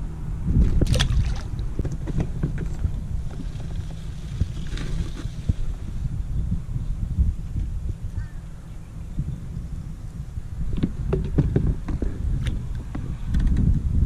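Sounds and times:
wind rumble on microphone: 0.0 - 14.0
fish splashing into water: 0.8 - 1.6
gear knocking on plastic kayak: 10.7 - 12.2.

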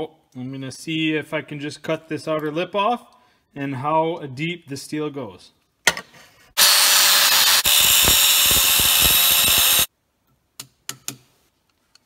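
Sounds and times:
angle grinder cutting metal: 6.6 - 9.9.

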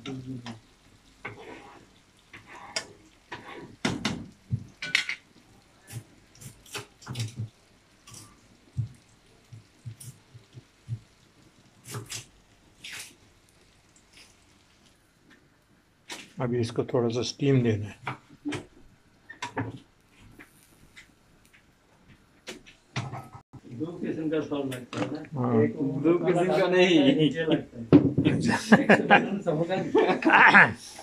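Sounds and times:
metal spatula scraping frying pan: 1.2 - 3.8
kitchen utensils clattering: 4.8 - 5.2.

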